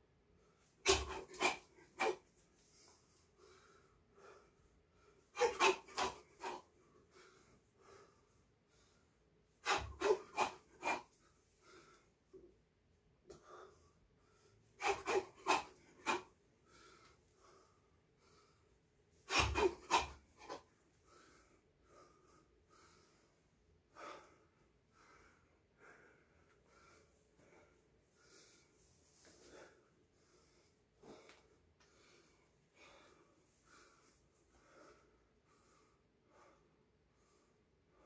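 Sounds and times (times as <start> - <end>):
sharp forceful exhalations: 0.8 - 2.2, 9.6 - 11.1, 14.8 - 16.2, 19.3 - 20.6.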